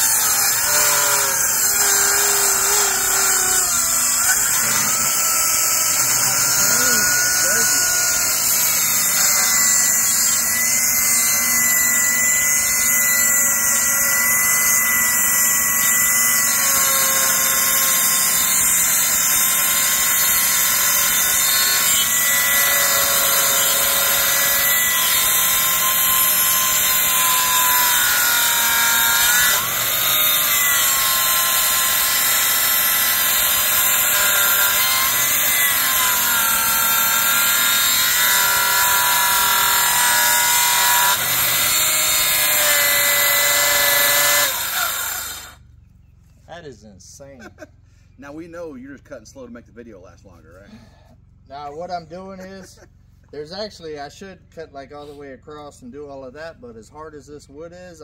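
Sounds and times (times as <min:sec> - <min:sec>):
circular saw cutting wood: 0:00.0 - 0:45.7.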